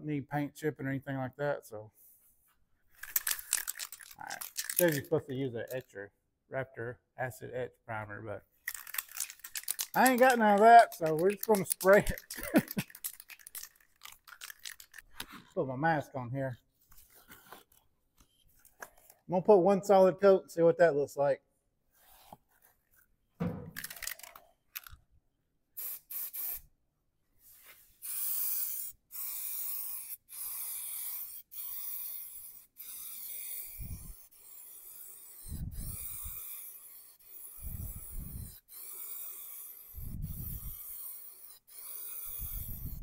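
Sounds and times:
aerosol spray can hissing: 0:08.7 - 0:15.0, 0:25.8 - 0:26.7, 0:28.0 - 0:43.0.

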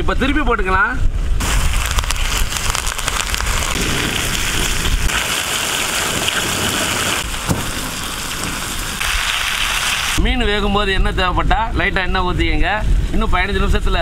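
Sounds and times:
oil sizzling under frying fish: 0:01.4 - 0:10.2.

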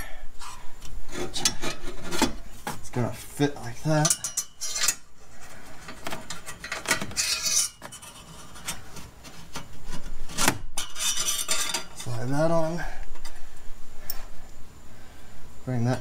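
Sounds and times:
metal scraping on pipe: 0:00.4 - 0:02.6, 0:04.0 - 0:12.6.

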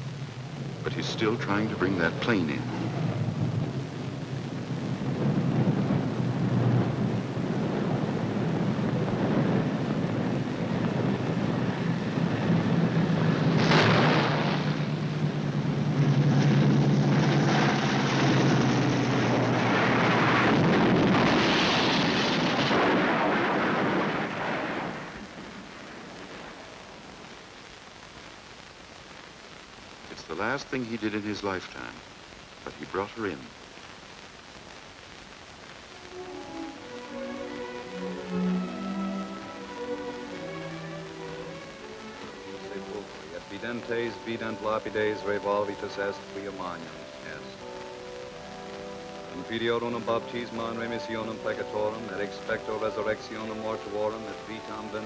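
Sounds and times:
propeller plane engines droning: 0:00.0 - 0:24.4, 0:36.1 - 0:55.0
loud rushing din: 0:00.0 - 0:26.7
sudden loud crash noise: 0:13.3 - 0:15.3, 0:15.9 - 0:25.5.

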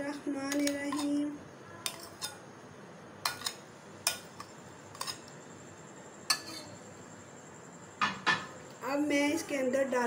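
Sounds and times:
metal spoon clinking on dishes: 0:00.5 - 0:02.4, 0:03.2 - 0:05.3, 0:06.2 - 0:06.8.

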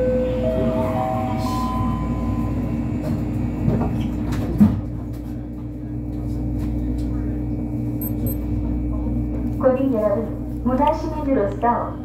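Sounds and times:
train car steady hum: 0:00.0 - 0:12.0.

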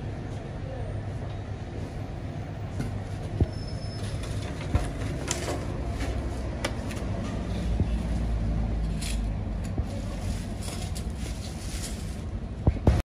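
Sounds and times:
steady low rumble: 0:05.7 - 0:13.0
foam box and plastic bag handled: 0:09.8 - 0:12.4
plastic rustle: 0:09.8 - 0:12.4.

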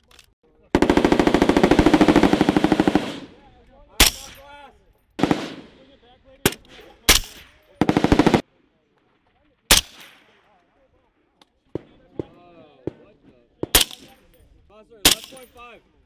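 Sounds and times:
machine-gun fire: 0:00.8 - 0:03.4, 0:05.2 - 0:05.8, 0:07.1 - 0:08.4
single rifle shots: 0:04.0 - 0:04.5, 0:05.2 - 0:05.8, 0:06.5 - 0:08.4, 0:09.6 - 0:10.4, 0:13.6 - 0:14.2, 0:15.0 - 0:15.4.

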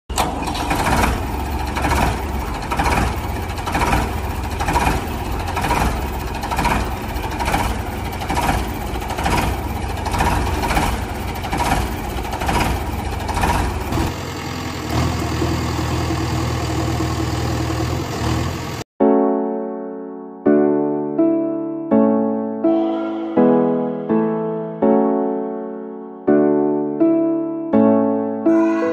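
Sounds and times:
heavy engine pulsing: 0:00.1 - 0:18.9
steady engine hum: 0:00.1 - 0:18.9.

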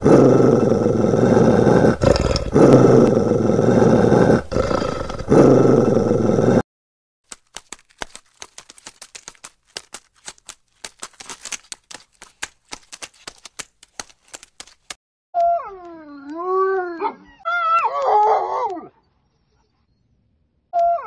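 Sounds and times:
dog paws clicking: 0:07.3 - 0:15.0.

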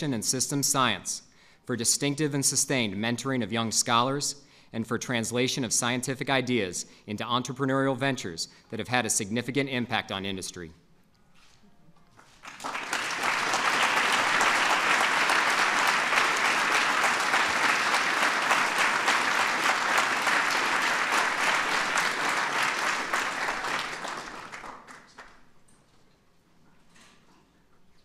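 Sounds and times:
audience applauding: 0:12.3 - 0:25.5.

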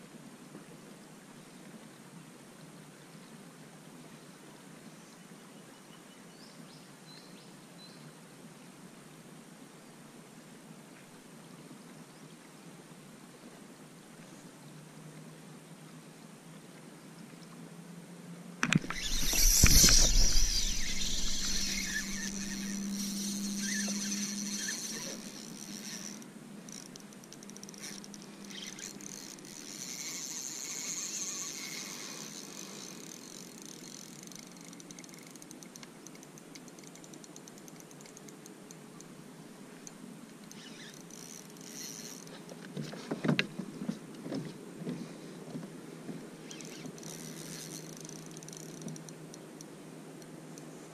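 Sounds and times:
rod thump: 0:18.6 - 0:23.2
fishing reel drag buzzing: 0:18.6 - 0:38.3, 0:40.4 - 0:42.4, 0:46.4 - 0:49.4
rod and reel clicks: 0:18.6 - 0:39.1, 0:39.8 - 0:43.5, 0:46.4 - 0:50.8.

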